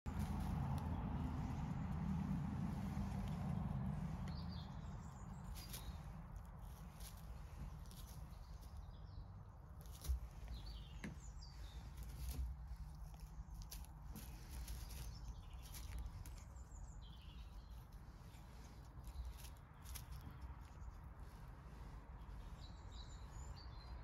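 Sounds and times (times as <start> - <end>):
low rumble: 0.1 - 7.8
birds chirping: 0.1 - 24.0
rabbit nibbling and rustling hay: 0.1 - 24.0.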